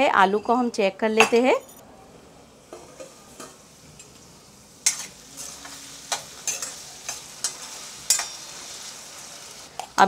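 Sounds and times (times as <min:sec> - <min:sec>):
light sizzle: 0:01.8 - 0:10.0
metal spoon scraping pan: 0:04.8 - 0:09.6.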